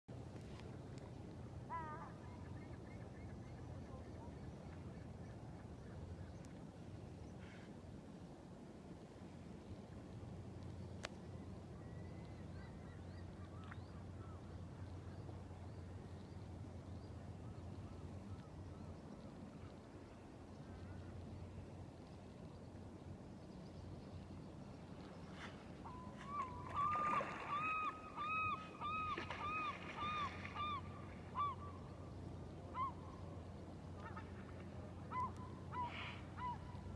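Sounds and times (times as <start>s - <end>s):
distant birds calling: 25.2s - 36.9s.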